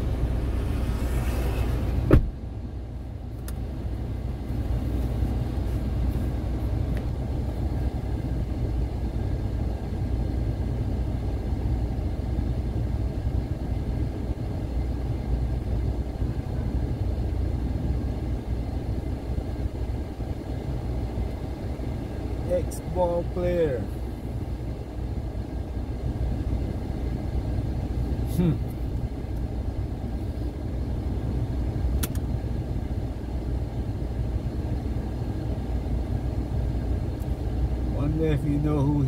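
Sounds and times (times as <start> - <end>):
car cabin rumble: 0.0 - 39.0
hiss from outside: 0.2 - 2.2
sharp thump: 1.5 - 2.4.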